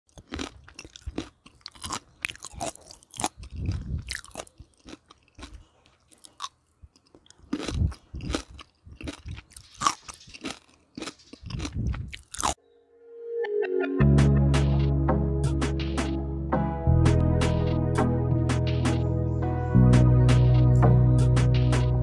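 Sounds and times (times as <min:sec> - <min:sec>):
crunchy food being chewed: 0:00.1 - 0:12.6.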